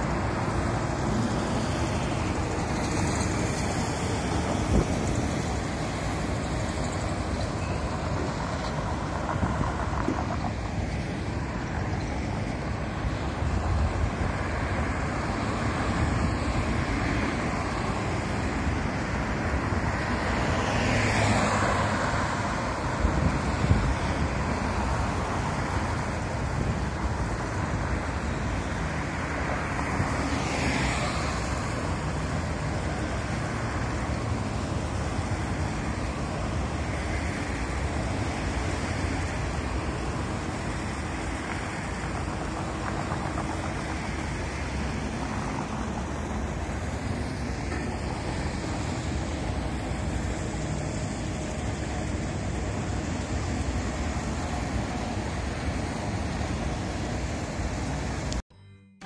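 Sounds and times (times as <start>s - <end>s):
vehicles passing close by: 0.0s - 58.4s
road traffic rumble: 0.0s - 58.7s
wind buffeting microphone: 2.6s - 16.9s, 22.5s - 28.0s.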